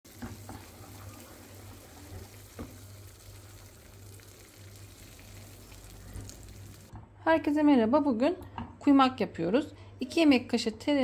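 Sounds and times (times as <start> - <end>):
food sizzling in a frying pan: 0.0 - 6.9.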